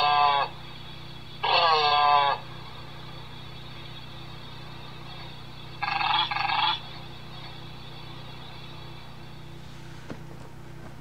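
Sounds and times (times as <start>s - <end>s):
tinny elephant seal call: 0.0s - 0.6s, 1.4s - 2.4s.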